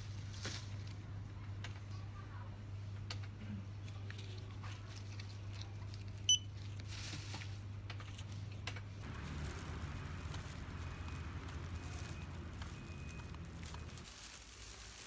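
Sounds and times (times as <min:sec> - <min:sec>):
checkout beep: 0:06.3 - 0:06.5, 0:10.6 - 0:14.0
steady low hum: 0:08.9 - 0:14.1
open-air hiss: 0:09.0 - 0:15.0
plastic bag rustling: 0:09.0 - 0:15.0.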